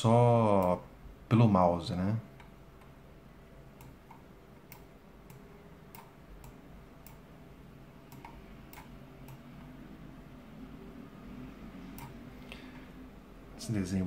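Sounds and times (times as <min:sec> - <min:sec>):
low steady hum: 0:00.0 - 0:14.0
computer mouse clicks: 0:03.8 - 0:07.2, 0:08.1 - 0:09.7, 0:11.9 - 0:12.2.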